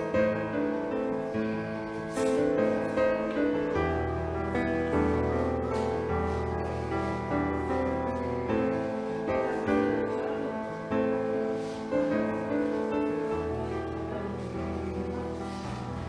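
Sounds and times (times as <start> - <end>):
slow gentle piano piece: 0.0 - 16.0.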